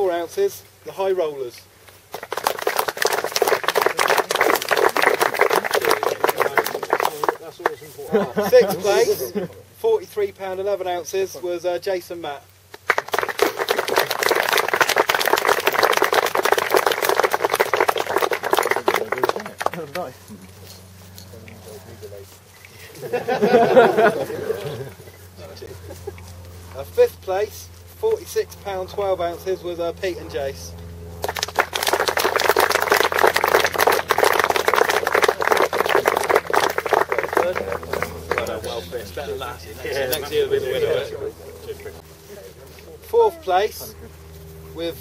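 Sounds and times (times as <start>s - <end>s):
crowd applauding: 2.1s - 7.8s, 12.7s - 20.1s, 31.2s - 38.7s.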